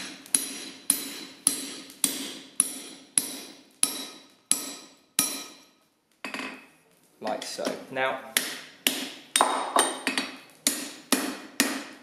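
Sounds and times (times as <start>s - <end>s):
hammer ringing on hot steel punch: 0.3s - 5.7s.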